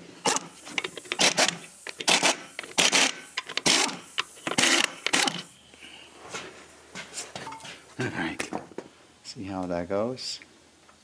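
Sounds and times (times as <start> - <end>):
pneumatic impact wrench hammering: 0.0 - 5.5.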